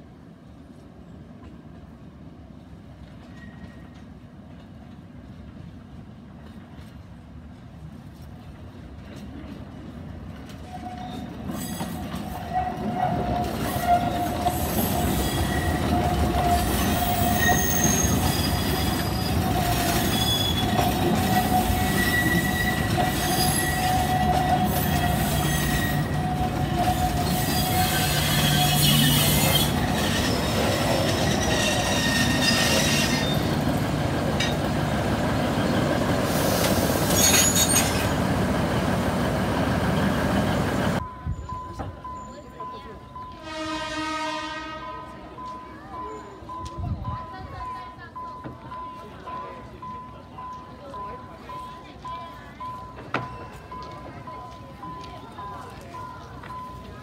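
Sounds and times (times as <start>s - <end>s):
diesel locomotive engine: 0.0s - 57.0s
rumble of train cars: 0.0s - 57.0s
train wheels squealing on rails: 3.0s - 4.5s, 9.1s - 44.4s, 45.0s - 57.0s.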